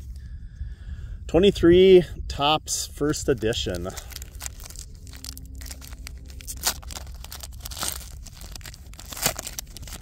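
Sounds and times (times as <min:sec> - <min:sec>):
foil wrapper tearing and crinkling: 0:03.7 - 0:10.0.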